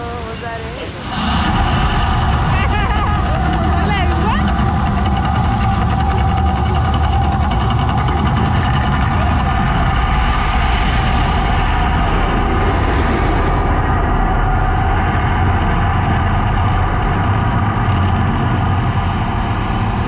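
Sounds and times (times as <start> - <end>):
gas fire rushing hiss: 0.0 - 7.2
deep steady rumble: 0.0 - 20.0.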